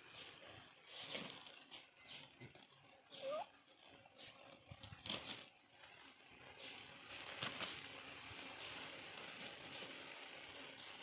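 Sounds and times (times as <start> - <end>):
rising bird call: 3.1 - 3.6.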